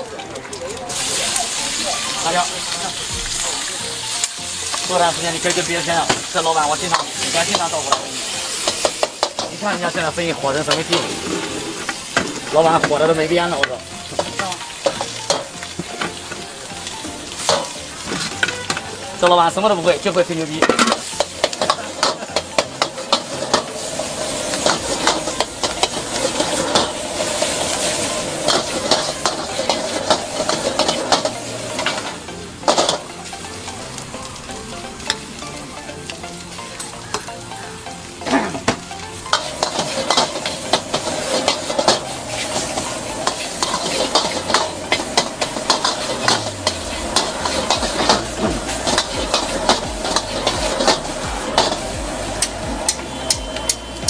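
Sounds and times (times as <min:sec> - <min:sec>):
rice sizzling in a wok: 0:00.0 - 0:54.0
metal ladle scraping a wok: 0:10.7 - 0:12.5, 0:20.6 - 0:33.0, 0:39.3 - 0:53.0.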